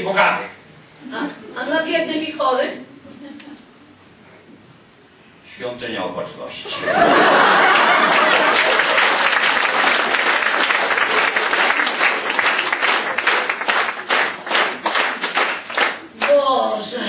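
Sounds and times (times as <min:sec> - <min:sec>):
audience applauding: 0:06.9 - 0:16.4.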